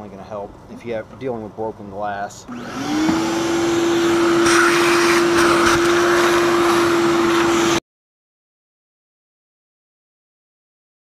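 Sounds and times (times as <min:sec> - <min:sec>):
shop vacuum running: 0:02.5 - 0:07.8.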